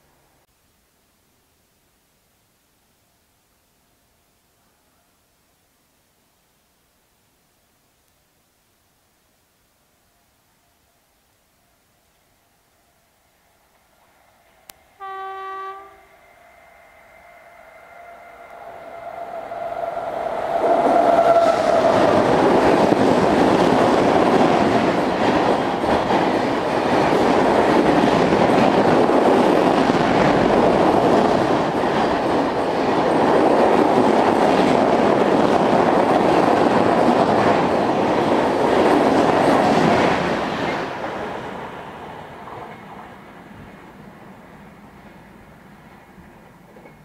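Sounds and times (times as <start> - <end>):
train horn: 15.0 - 22.3
train coaches rushing past: 15.2 - 47.0.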